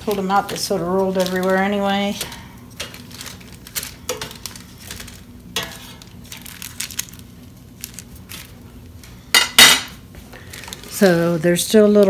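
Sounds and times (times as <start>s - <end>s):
tongs clattering on a plate: 2.8s - 6.7s, 9.3s - 10.0s.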